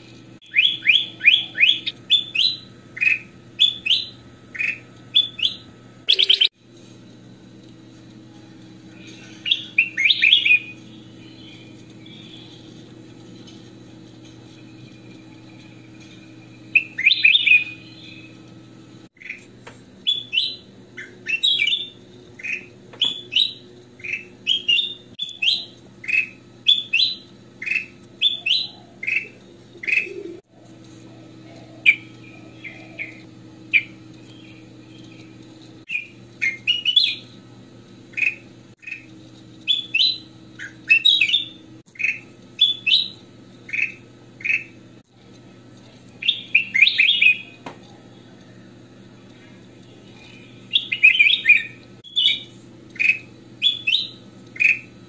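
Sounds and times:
steady low hum: 0:00.0 - 0:55.0
bird singing whistled notes: 0:00.4 - 0:06.5, 0:09.4 - 0:12.7, 0:16.6 - 0:18.4, 0:20.0 - 0:30.4, 0:35.9 - 0:37.3, 0:38.1 - 0:44.8, 0:46.2 - 0:47.6, 0:50.1 - 0:54.9.

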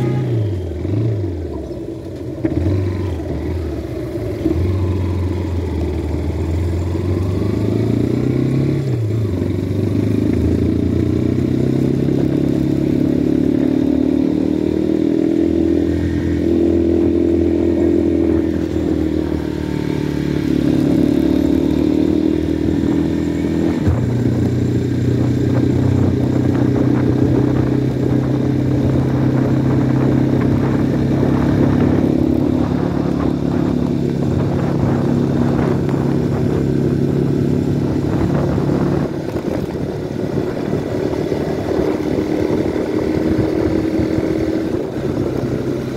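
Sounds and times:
motorcycle engine running: 0:00.0 - 0:45.9.

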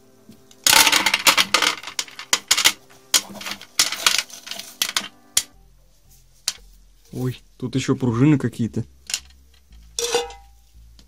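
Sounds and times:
lead sinkers clinking together: 0:10.0 - 0:10.5.

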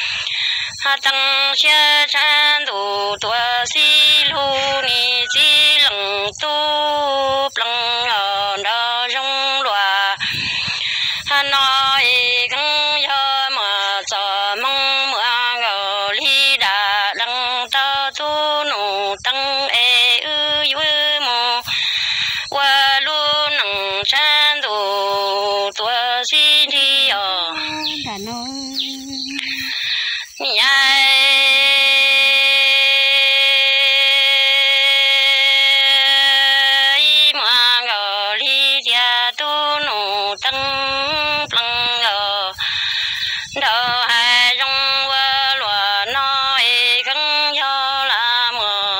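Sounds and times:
person singing unaccompanied: 0:00.0 - 0:48.9.

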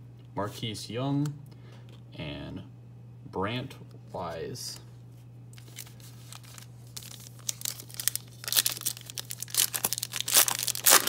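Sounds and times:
foil wrapper tearing and crinkling: 0:05.6 - 0:11.0.

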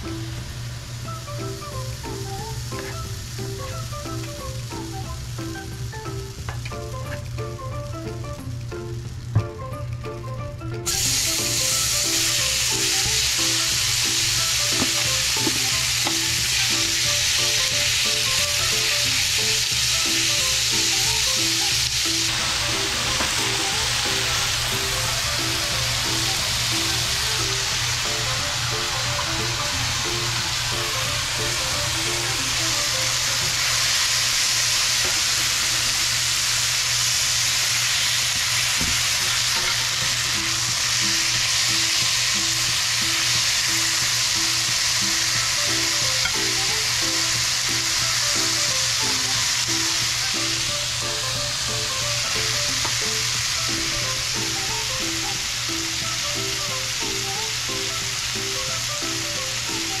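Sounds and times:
vegetables sizzling in skillet: 0:00.0 - 1:00.0.

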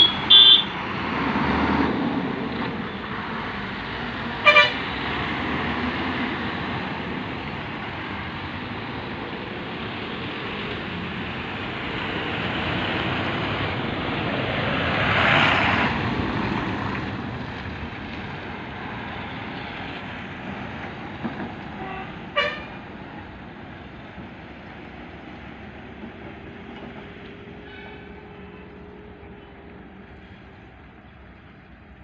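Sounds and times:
vehicle horn toot: 0:00.0 - 0:00.8, 0:04.4 - 0:04.8, 0:21.8 - 0:22.7
bus diesel engine running: 0:00.0 - 0:32.0.

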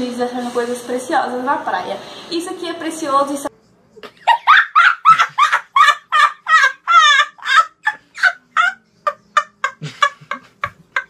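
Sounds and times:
boy laughing: 0:04.1 - 0:11.0.

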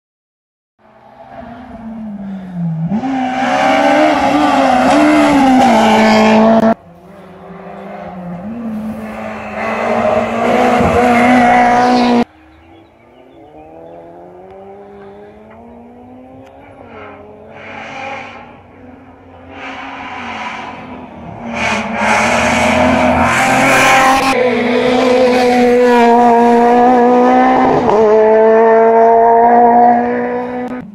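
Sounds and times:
distant engine revving: 0:01.1 - 0:30.9
rally car engines at high revs: 0:01.1 - 0:30.9.

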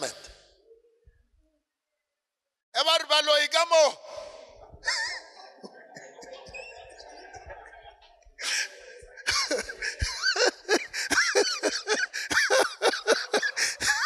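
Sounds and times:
preacher speaking rapidly: 0:00.0 - 0:00.4, 0:02.8 - 0:04.7, 0:08.4 - 0:14.0.

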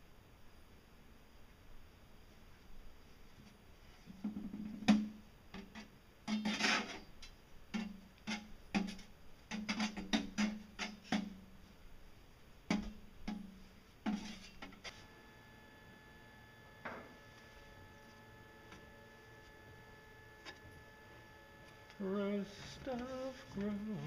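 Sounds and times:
metal scraping: 0:05.6 - 0:07.2, 0:14.1 - 0:15.0.

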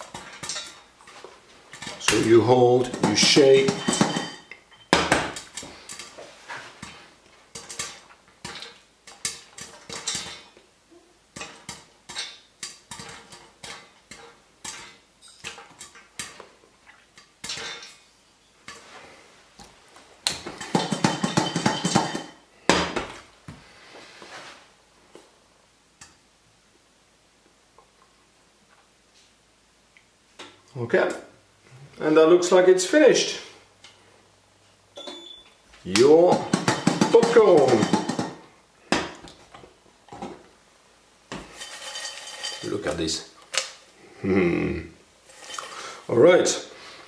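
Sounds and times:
popcorn popping in covered pan: 0:00.0 - 0:06.2, 0:06.8 - 0:10.6, 0:11.3 - 0:17.9, 0:20.2 - 0:23.1, 0:35.9 - 0:39.4, 0:41.3 - 0:43.8.

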